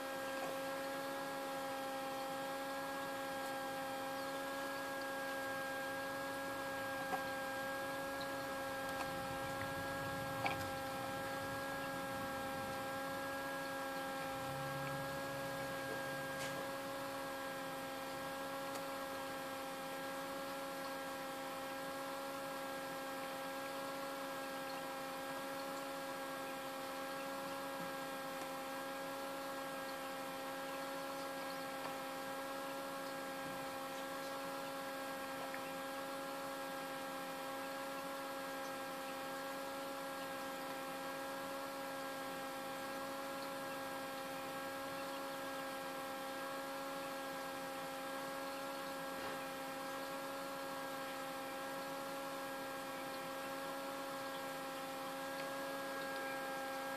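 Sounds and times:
fan motor humming: 0.0 - 20.9, 42.2 - 56.9.

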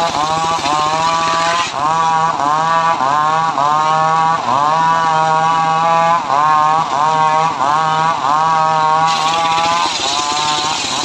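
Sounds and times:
engine pitch dipping under load: 0.0 - 5.8, 8.2 - 11.0
circular saw cutting wood: 0.0 - 11.0.

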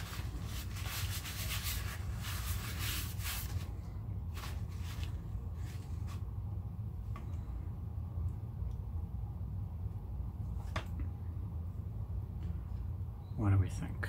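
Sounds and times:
rubbing and scrubbing wire: 0.0 - 3.7.

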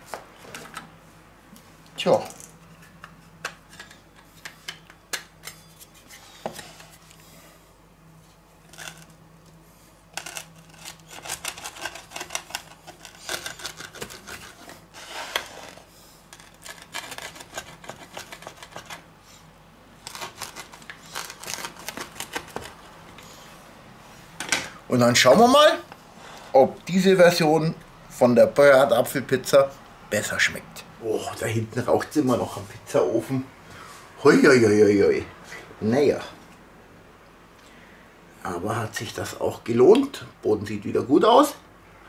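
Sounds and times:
pizza wheel cutting crust: 8.7 - 9.2, 10.1 - 19.4, 20.0 - 22.9.

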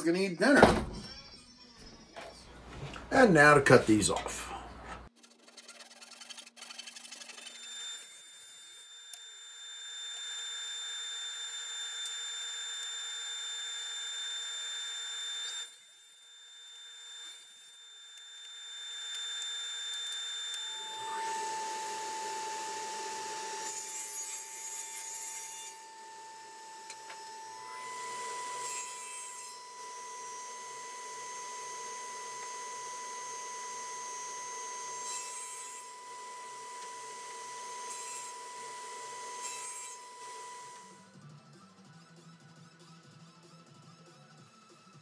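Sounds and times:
table saw cutting wood: 5.1 - 41.1.

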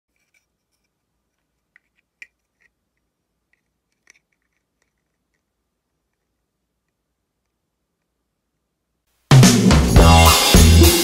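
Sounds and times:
plastic parts clicking and tapping: 0.1 - 8.1.

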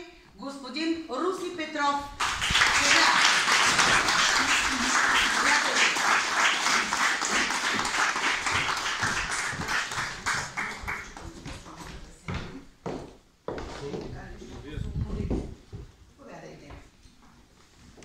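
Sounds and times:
audience applauding: 2.2 - 11.4.

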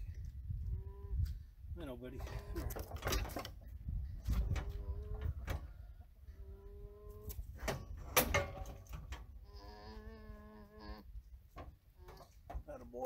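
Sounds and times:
metal chute clanking: 7.6 - 9.3.

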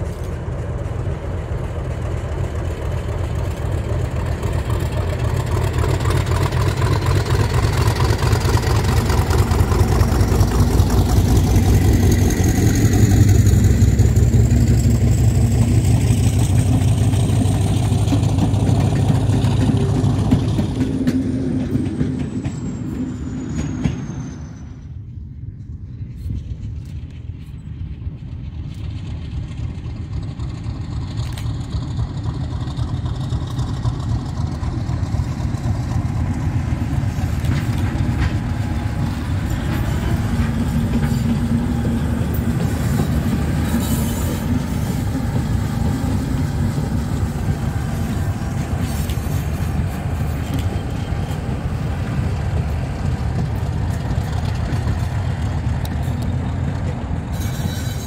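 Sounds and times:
coaches rolling on rails: 0.0 - 58.0
diesel locomotive engine rumble: 0.0 - 58.0.

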